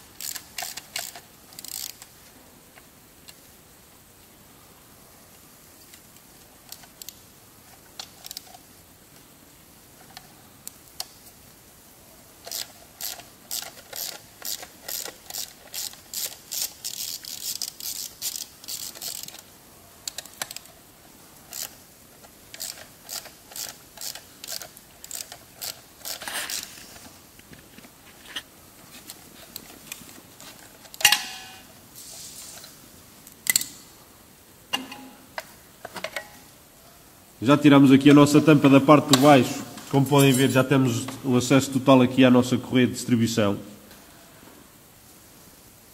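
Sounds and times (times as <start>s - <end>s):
hand ratchet clicking: 0.2s - 2.1s, 12.4s - 19.4s, 21.5s - 21.8s, 22.5s - 26.7s.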